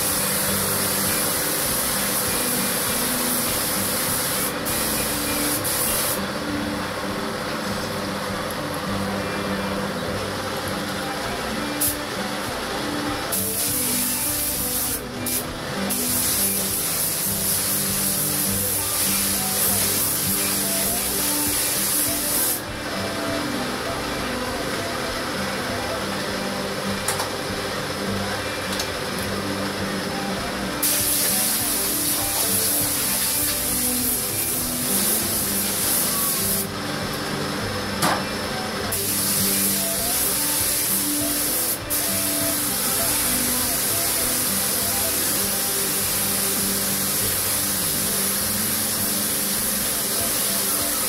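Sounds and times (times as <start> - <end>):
paint spray gun hissing: 0.0 - 6.4, 11.6 - 12.5, 13.2 - 22.7, 29.6 - 36.8, 38.9 - 51.0
background music: 0.0 - 51.0
steady noise: 0.0 - 51.0.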